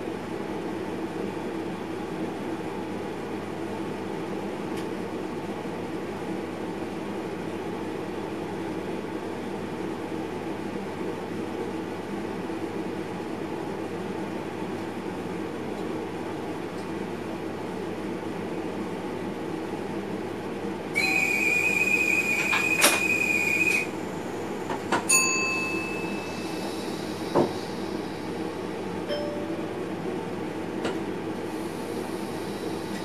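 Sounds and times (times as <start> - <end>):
train rumble: 20.9 - 33.0
brief ringing tones: 25.1 - 26.9, 29.1 - 30.0
high electronic warning tone: 25.1 - 27.0.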